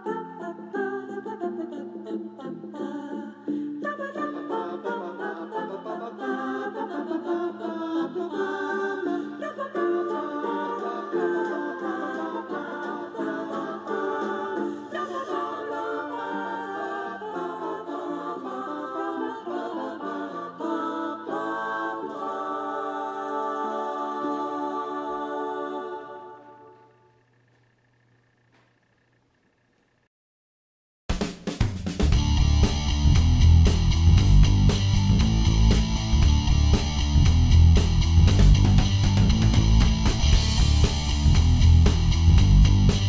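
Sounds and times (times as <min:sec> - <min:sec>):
a cappella group singing: 0:00.0 - 0:26.9.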